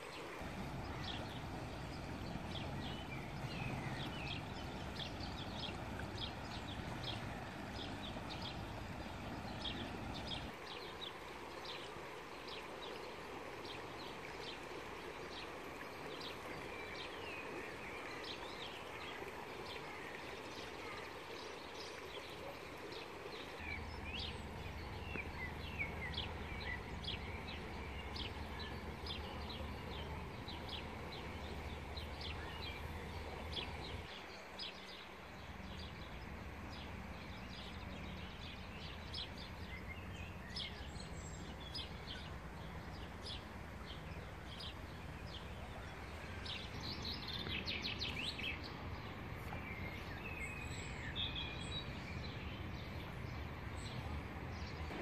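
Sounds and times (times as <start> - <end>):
songbirds chirping: 0.0 - 55.0.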